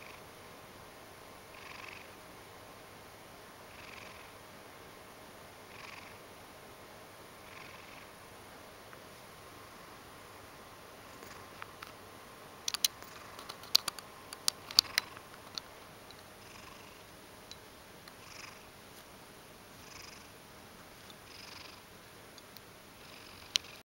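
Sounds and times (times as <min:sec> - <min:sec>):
cat purring: 0:01.5 - 0:02.2, 0:03.7 - 0:04.4, 0:05.7 - 0:06.2, 0:07.4 - 0:08.2, 0:11.0 - 0:11.7, 0:12.7 - 0:17.1, 0:18.2 - 0:18.8, 0:19.7 - 0:20.4, 0:21.0 - 0:22.0, 0:23.0 - 0:23.8.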